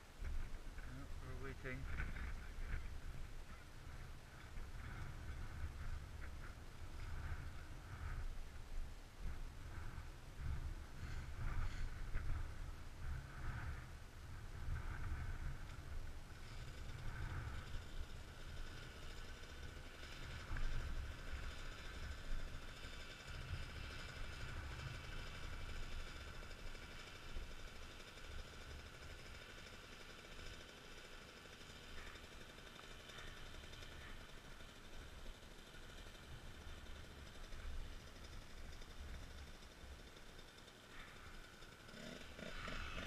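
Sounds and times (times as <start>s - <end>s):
low uneven rumble: 0.0s - 29.7s
muffled dirt bike engine idling: 0.0s - 43.0s.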